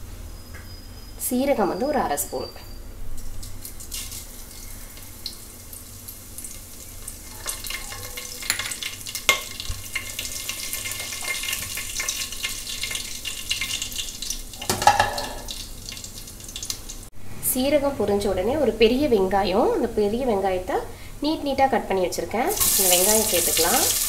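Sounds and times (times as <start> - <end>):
seeds sizzling and popping in oil: 3.2 - 17.1, 22.5 - 24.0.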